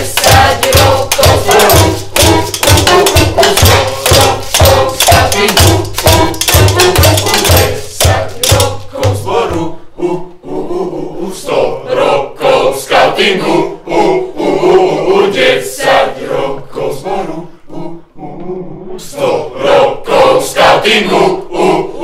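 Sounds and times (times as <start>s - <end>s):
hand drum beats: 0.0s - 9.6s
young voices singing in chorus: 0.0s - 22.0s.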